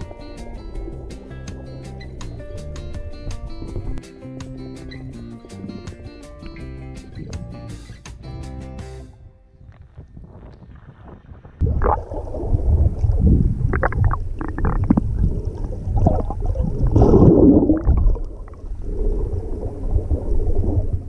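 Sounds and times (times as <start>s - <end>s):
underwater rumbling and gurgling: 0.0s - 4.0s, 9.7s - 21.0s.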